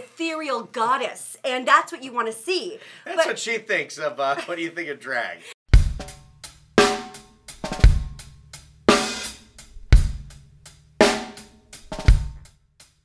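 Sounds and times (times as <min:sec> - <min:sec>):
drum-heavy music: 0:05.7 - 0:12.9.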